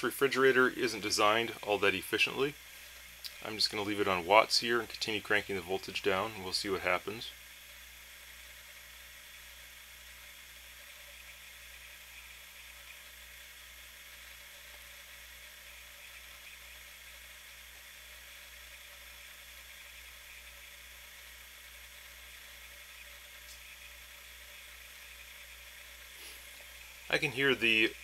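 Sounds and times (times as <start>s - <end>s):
minifridge compressor hum: 0.0s - 28.0s
steady hiss: 0.0s - 28.0s.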